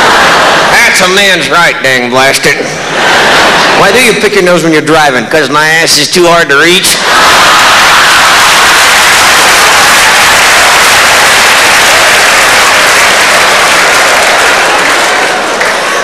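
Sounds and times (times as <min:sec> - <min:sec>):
audience laughing: 0:00.0 - 0:01.2, 0:02.6 - 0:04.3
audience applauding: 0:07.0 - 0:16.0.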